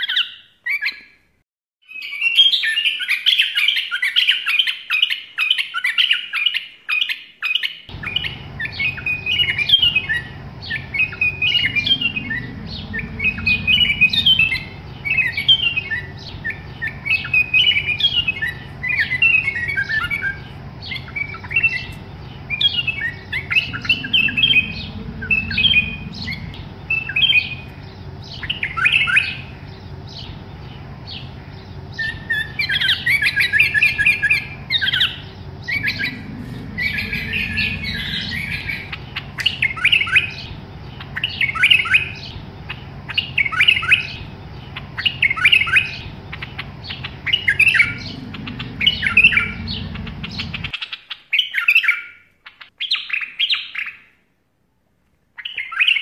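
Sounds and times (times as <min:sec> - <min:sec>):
bird chirping: 0:01.9 - 0:54.1
low rumble: 0:07.9 - 0:43.5, 0:44.2 - 0:50.8.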